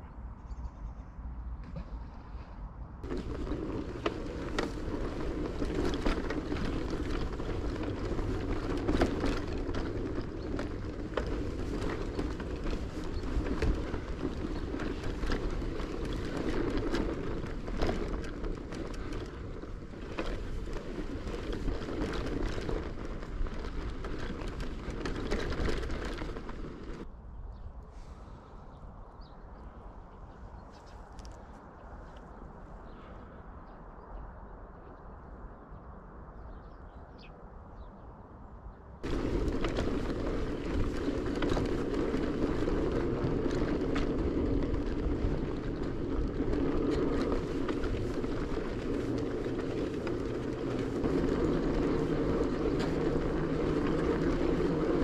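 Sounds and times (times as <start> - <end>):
wind noise: 0.0 - 55.0
bicycle rolling over rough track: 3.0 - 27.1, 39.0 - 55.0.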